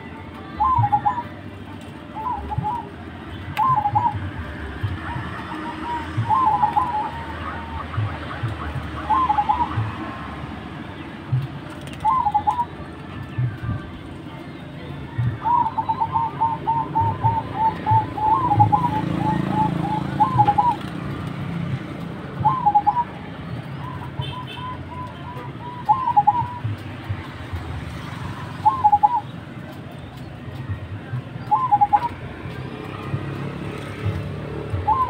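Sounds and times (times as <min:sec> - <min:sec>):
doves cooing: 0:00.0 - 0:14.0, 0:15.0 - 0:35.0.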